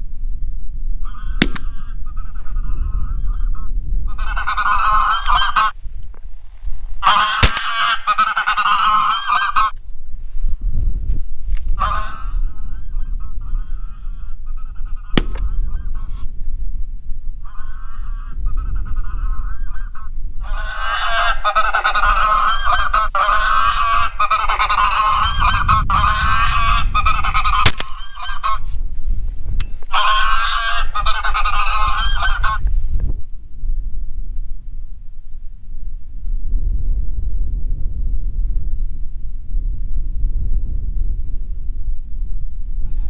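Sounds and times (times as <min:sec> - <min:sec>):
low wind rumble: 0:00.0 - 0:43.0
recorded geese honking: 0:01.0 - 0:05.8, 0:07.0 - 0:09.8, 0:11.8 - 0:16.3, 0:17.4 - 0:28.8, 0:29.8 - 0:32.6.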